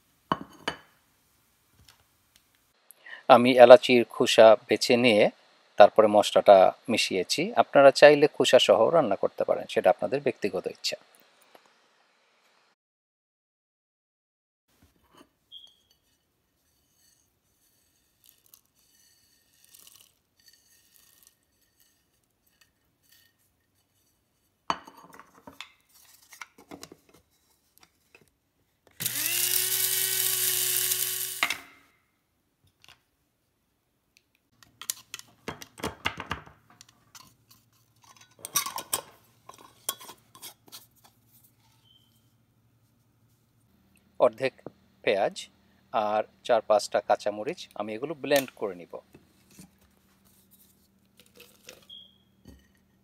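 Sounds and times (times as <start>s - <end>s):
powder clinking into glass jar: 17.2s - 23.3s
electric spice grinder running: 29.0s - 31.7s.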